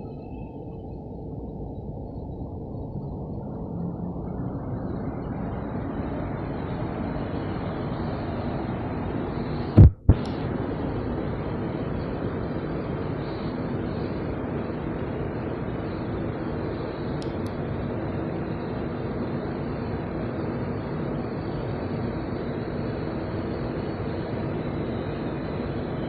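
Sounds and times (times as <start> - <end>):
train cooling fans humming: 0.0 - 26.0
sharp double thump: 9.8 - 10.3.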